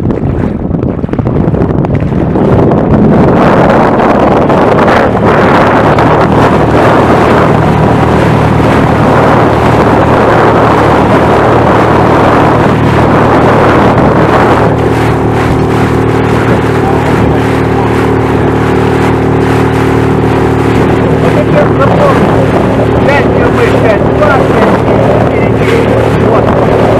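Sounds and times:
outboard motor running: 0.0 - 26.9
water rushing past hull: 0.0 - 26.9
wind on microphone: 0.0 - 26.9.

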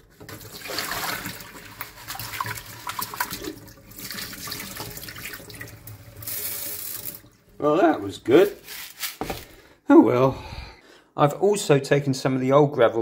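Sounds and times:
tap water splashing: 0.1 - 6.0.

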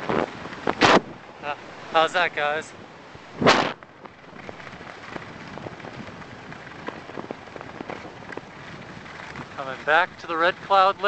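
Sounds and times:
skis sliding over packed snow: 1.4 - 2.7, 3.4 - 11.0.

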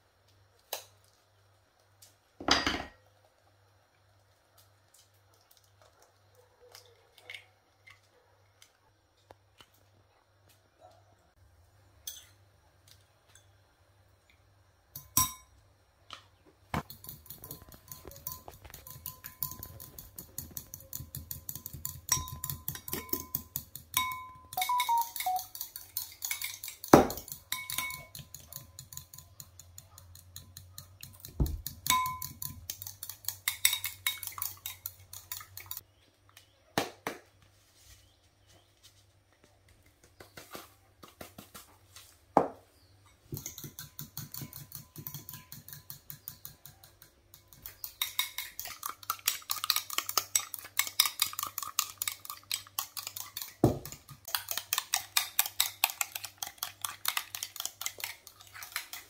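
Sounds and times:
fork clinking against glass bowl: 12.0 - 12.4, 16.8 - 35.8, 43.1 - 58.9.

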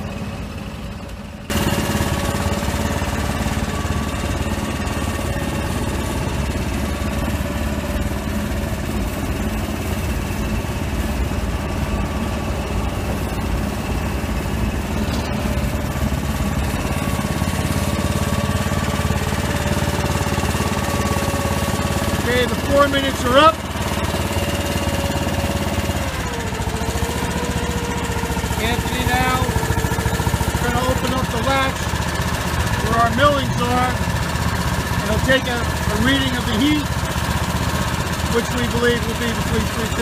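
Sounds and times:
asphalt mixer machine drone: 0.0 - 40.0.

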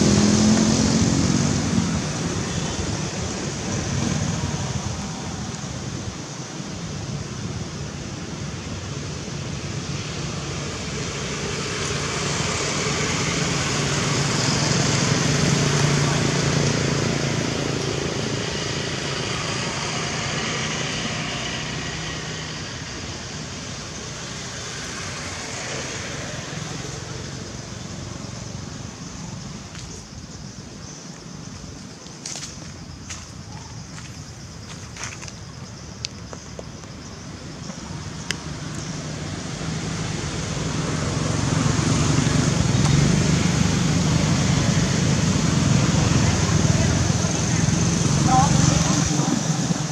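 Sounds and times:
passing vehicle engine drone: 0.0 - 6.0, 9.0 - 29.8, 37.2 - 49.9.

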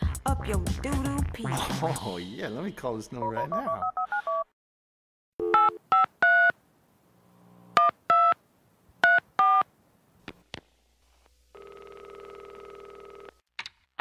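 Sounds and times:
telephone keypad two-tone beeps: 3.3 - 4.4.

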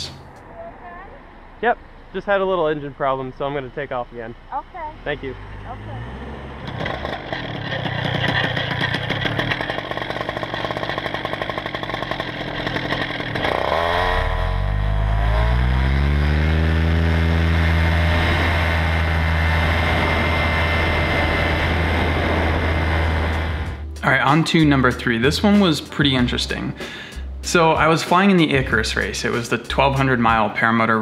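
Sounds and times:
two-stroke engine droning: 0.0 - 23.9.

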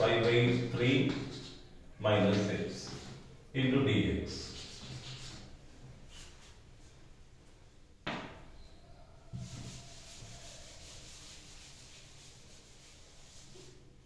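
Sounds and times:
duster scrubbing blackboard: 9.3 - 14.0.

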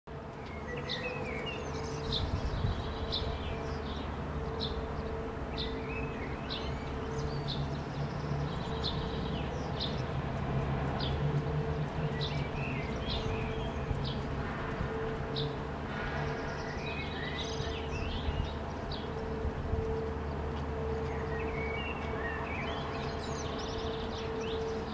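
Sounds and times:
sparrow chirping: 0.4 - 10.2, 10.9 - 15.6, 20.9 - 24.9.

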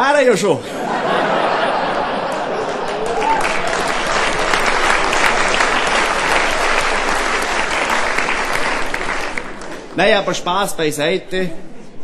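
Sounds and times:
audience applauding: 1.2 - 10.6.

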